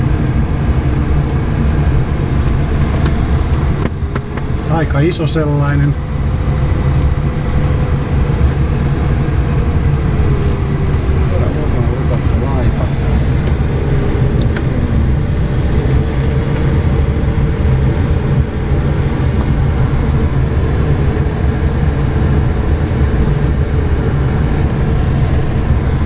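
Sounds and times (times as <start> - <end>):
rushing airflow over glider: 0.0 - 26.0.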